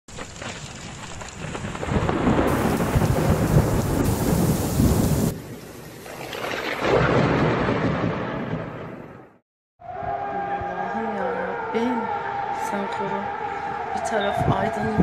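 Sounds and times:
rain hissing: 0.1s - 7.6s
thunder rumbling: 0.1s - 9.4s.

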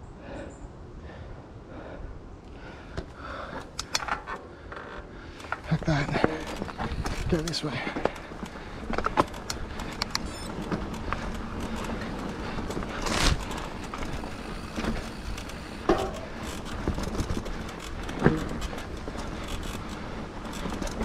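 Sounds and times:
tyre and wind noise: 2.2s - 21.0s
bike clicks and rattles: 2.5s - 21.0s
bike knocks: 5.4s - 19.8s.

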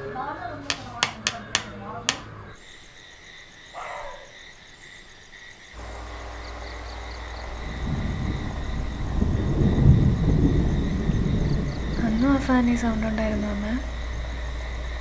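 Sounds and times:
insects and frogs chirring: 1.0s - 15.0s
uneven low rumbling: 5.8s - 15.0s.

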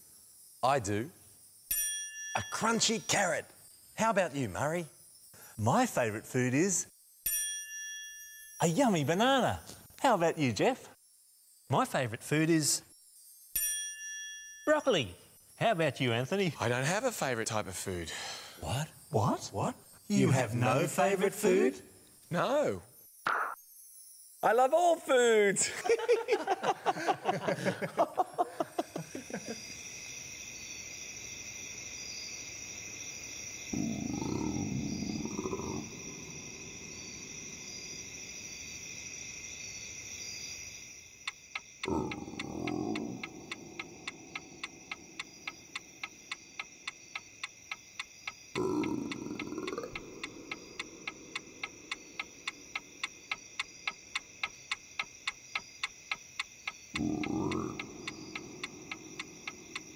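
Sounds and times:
crickets chirring: 0.0s - 59.9s
clock ticking: 41.2s - 59.9s.

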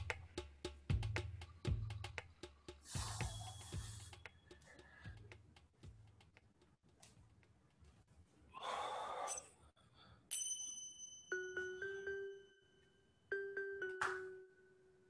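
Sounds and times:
person exhaling: 2.8s - 5.2s, 8.5s - 10.2s
ringing chime tones: 10.3s - 15.0s.

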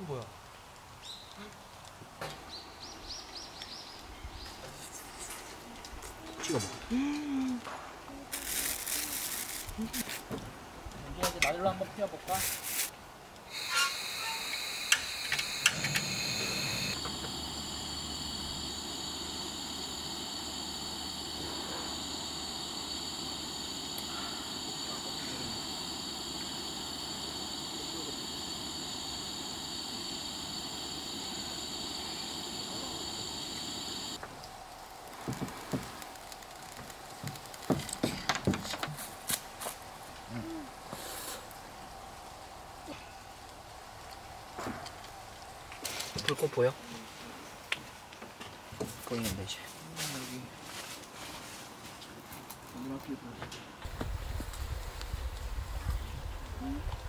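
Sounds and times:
hissing stove flame: 8.3s - 46.9s, 53.8s - 57.0s
camping stove igniter clicks: 13.6s - 17.3s.

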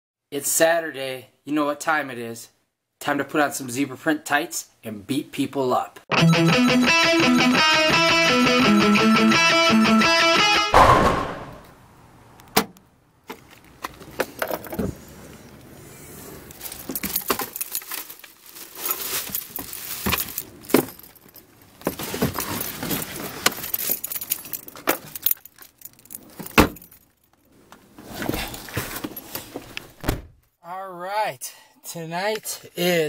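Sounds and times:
car keys jangling: 16.7s - 27.5s
rustles and knocks in trunk: 18.8s - 24.2s.

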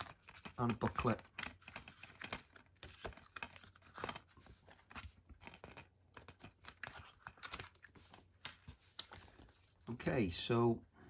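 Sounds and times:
paper and card rustling: 0.0s - 10.2s.

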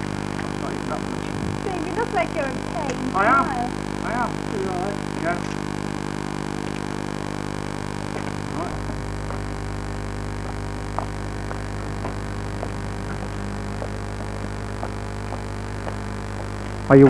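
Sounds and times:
electrical mains hum: 0.0s - 17.0s.

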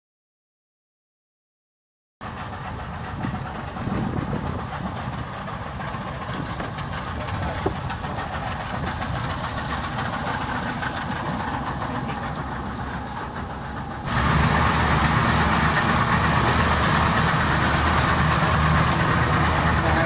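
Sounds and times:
boat engine running: 2.2s - 20.0s
rushing water: 9.5s - 20.0s.

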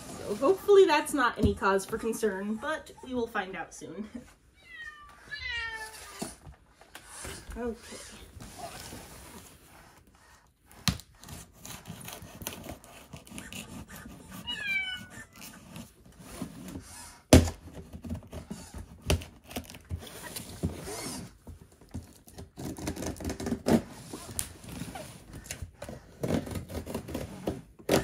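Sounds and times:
knife cutting packing tape: 10.7s - 14.5s, 17.4s - 21.3s, 22.0s - 28.0s
robot cat meow: 14.5s - 15.3s.

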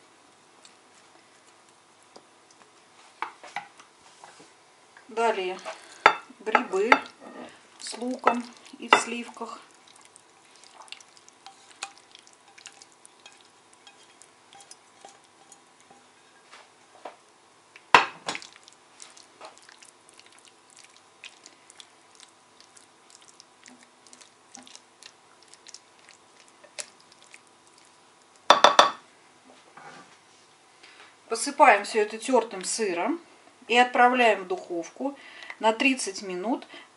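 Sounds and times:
spatula scraping sauce: 7.3s - 16.5s.

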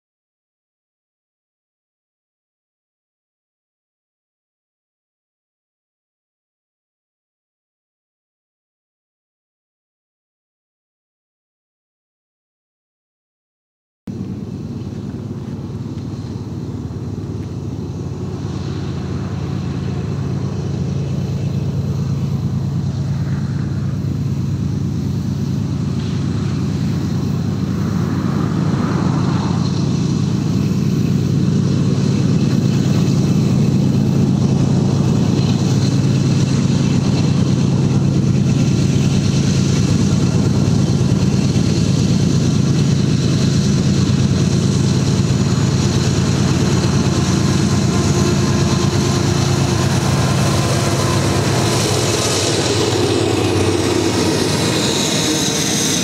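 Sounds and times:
diesel locomotive rumble: 14.1s - 56.0s.

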